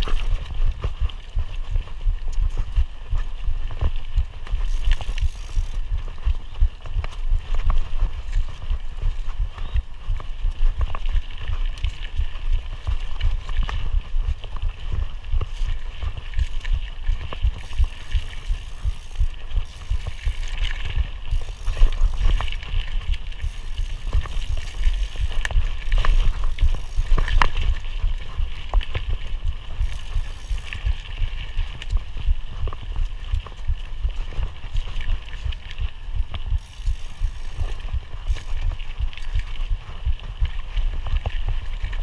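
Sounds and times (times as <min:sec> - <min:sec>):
bike clicks and rattles: 0:00.0 - 0:42.0
mountain bike rumbling on dirt trail: 0:00.0 - 0:42.0.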